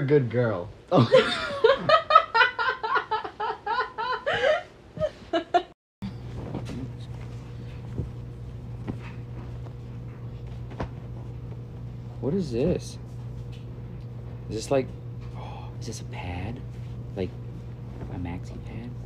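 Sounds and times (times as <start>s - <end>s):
steady low hum: 0.0s - 19.0s
woman laughing hard: 1.0s - 5.8s.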